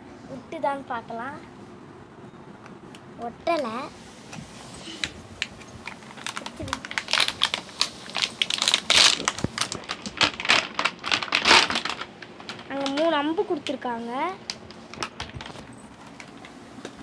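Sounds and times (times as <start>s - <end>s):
plastic packaging crackling: 4.8s - 17.0s.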